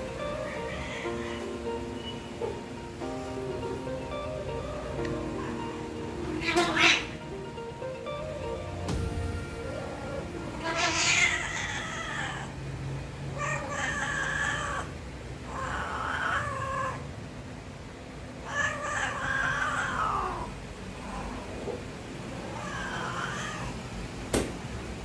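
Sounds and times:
cat yowling: 0.2s - 1.5s, 5.4s - 7.2s, 9.6s - 12.6s, 13.3s - 17.1s, 18.4s - 21.6s, 22.3s - 23.8s.

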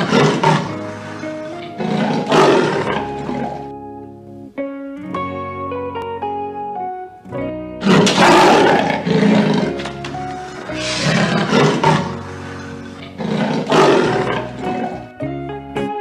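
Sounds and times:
big cat roaring: 0.0s - 3.7s, 7.8s - 15.1s
background music: 0.0s - 16.0s.

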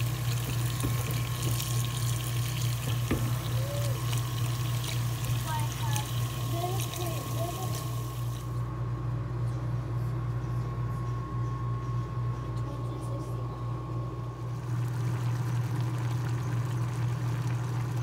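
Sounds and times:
water boiling in a pot: 0.0s - 8.7s, 14.5s - 18.0s
steady low hum: 0.0s - 18.0s.

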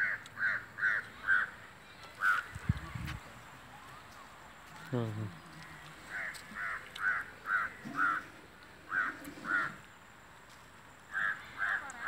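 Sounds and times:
crow cawing: 0.0s - 1.6s, 5.6s - 9.9s, 11.1s - 12.0s.

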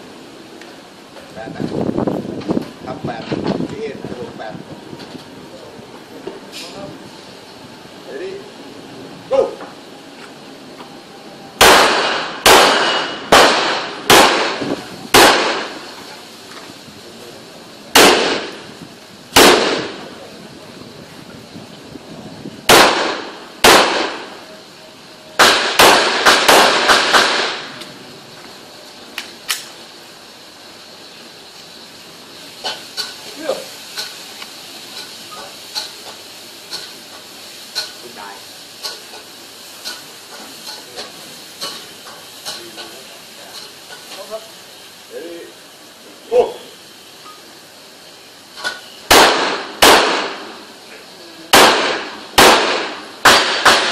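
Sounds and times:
handgun shots: 11.6s - 15.7s, 18.0s - 18.5s, 19.4s - 19.9s, 22.7s - 24.2s, 25.4s - 27.7s, 49.1s - 50.4s, 51.6s - 53.9s.

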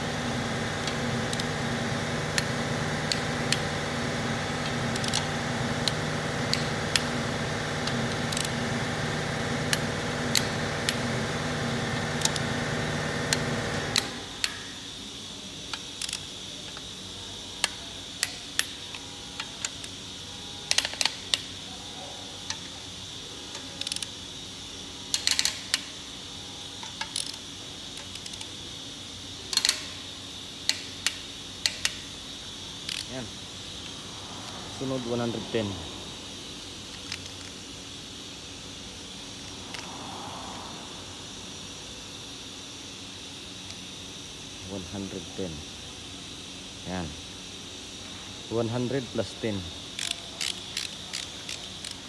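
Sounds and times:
steady machine hum: 0.0s - 52.0s
torque wrench clicks: 0.8s - 1.5s, 4.6s - 7.1s, 7.8s - 8.5s, 9.7s - 11.0s, 15.7s - 16.9s, 20.7s - 21.5s, 23.5s - 24.1s, 25.1s - 25.9s, 26.8s - 28.5s, 29.5s - 30.0s, 30.6s - 32.1s, 32.8s - 33.2s, 36.9s - 37.6s, 49.8s - 52.0s.

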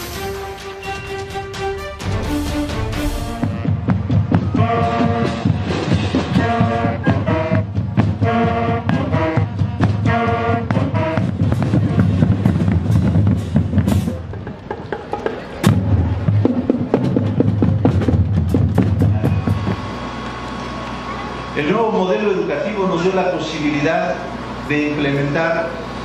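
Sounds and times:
horns playing held chords: 0.0s - 12.5s
marching drums with bass drum: 0.0s - 20.0s.

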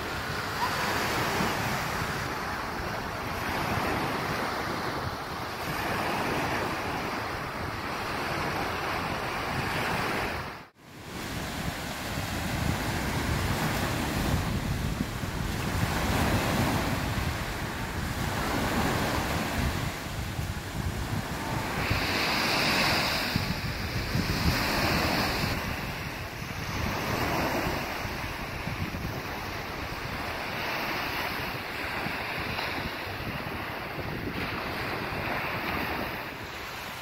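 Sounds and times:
waves washing up beach: 0.0s - 37.0s
wind on microphone: 0.0s - 37.0s.

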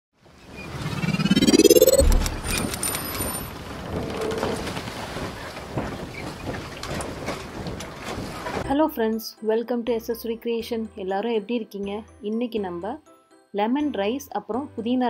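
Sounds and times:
rising sweep: 0.6s - 3.0s.

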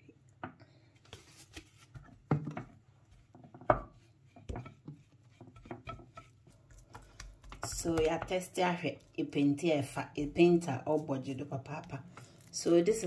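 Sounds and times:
brush tapping and scraping dish: 2.4s - 8.6s.

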